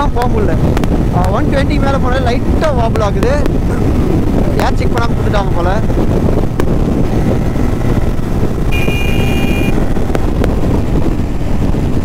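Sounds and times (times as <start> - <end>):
motorcycle engine running: 0.0 - 12.0
wind rushing over microphone: 0.0 - 12.0
high beep: 8.7 - 9.8.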